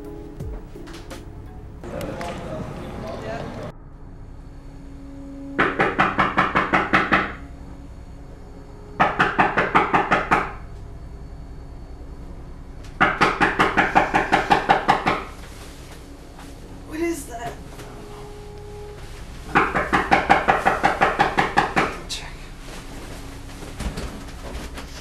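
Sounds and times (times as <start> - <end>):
rapid knocking on a door: 13.0 - 15.2, 19.5 - 22.0.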